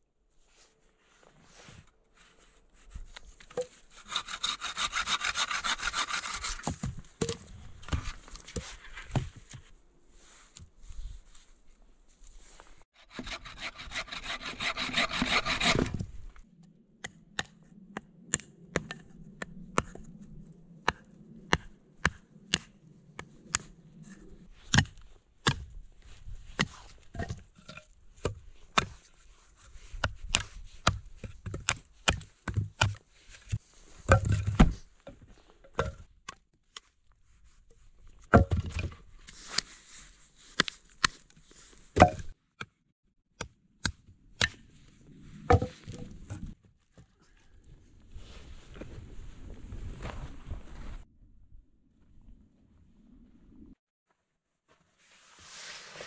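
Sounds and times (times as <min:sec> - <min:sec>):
hand saw cutting wood: 0:03.9 - 0:06.8, 0:13.0 - 0:16.1
logs knocking when stacked: 0:45.5 - 0:46.1.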